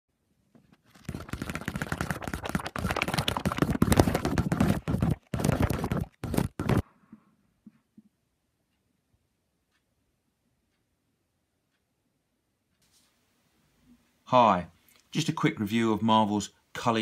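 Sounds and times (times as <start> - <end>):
paper pages crackling and rustling: 0.6 - 6.8.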